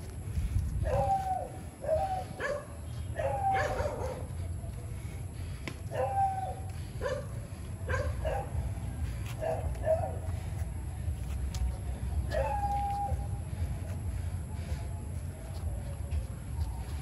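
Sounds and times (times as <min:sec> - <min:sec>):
steady low rumble: 0:00.0 - 0:17.0
dog barking: 0:01.8 - 0:04.3, 0:07.0 - 0:07.3, 0:07.9 - 0:08.5, 0:09.4 - 0:10.2.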